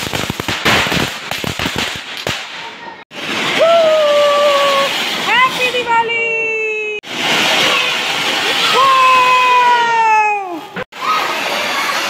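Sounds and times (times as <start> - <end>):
fireworks crackling: 0.0 - 12.0
fountain firework hissing: 2.0 - 12.0.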